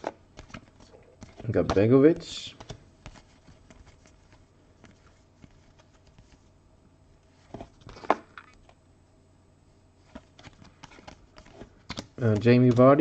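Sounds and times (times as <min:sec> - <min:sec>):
trading cards rustling: 0:00.0 - 0:06.5, 0:10.0 - 0:13.0.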